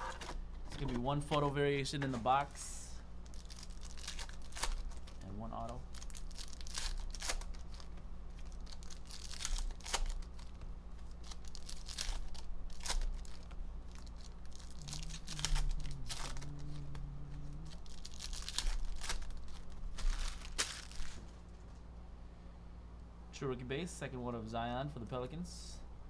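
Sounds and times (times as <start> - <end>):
foil packs tearing and crinkling: 3.2 - 21.3.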